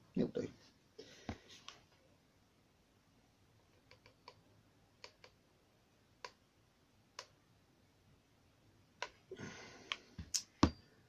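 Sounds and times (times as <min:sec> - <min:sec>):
faint clicks: 0:03.7 - 0:04.4.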